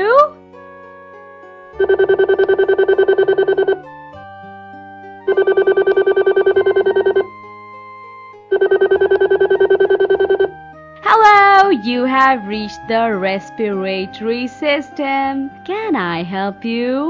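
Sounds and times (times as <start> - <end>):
soft background music: 0.0 - 17.0
electronic telephone ringing: 1.8 - 3.9, 5.2 - 7.3, 8.5 - 10.6.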